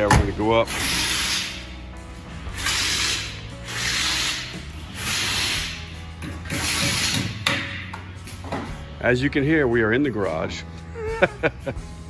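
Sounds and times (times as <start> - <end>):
hissing rasping stroke: 2.5 - 6.0.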